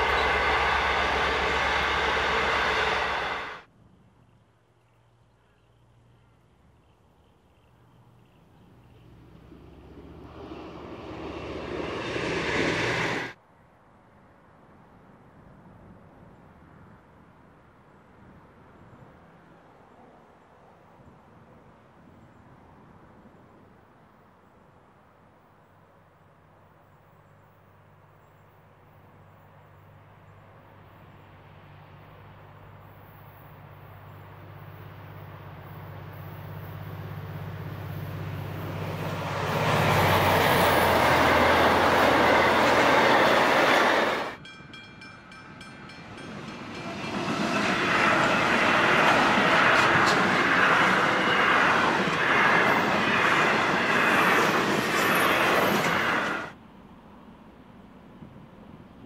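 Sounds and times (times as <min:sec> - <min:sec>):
train wheels on rails: 0:00.0 - 0:03.7, 0:08.7 - 0:13.4, 0:34.1 - 0:56.6
diesel locomotive engine drone: 0:00.0 - 0:13.4, 0:24.4 - 0:59.0.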